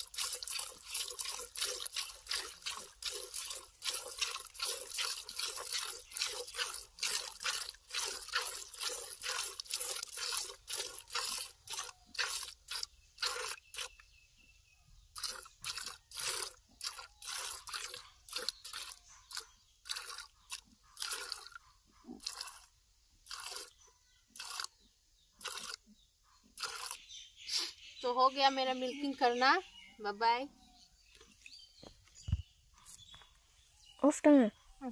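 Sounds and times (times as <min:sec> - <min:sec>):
milk squirting into plastic bucket: 0:00.0 - 0:14.1, 0:15.1 - 0:21.6, 0:22.2 - 0:23.8, 0:24.4 - 0:24.8, 0:25.4 - 0:25.8, 0:26.6 - 0:27.0.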